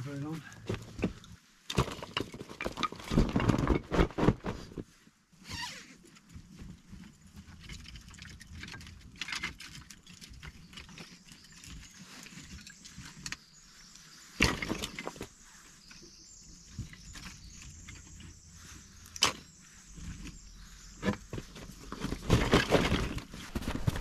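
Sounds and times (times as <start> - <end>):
sharp wooden clunks: 14.4 - 15.2, 21.0 - 24.0.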